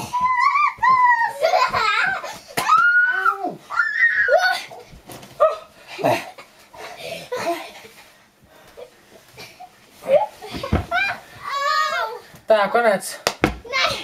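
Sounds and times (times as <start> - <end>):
children laughing and squealing: 0.0 - 4.8, 10.0 - 12.2.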